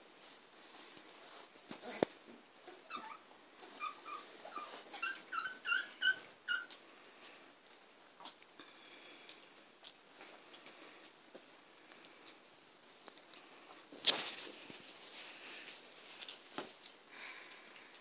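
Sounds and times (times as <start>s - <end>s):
puppies whimpering and yipping: 2.7s - 6.8s.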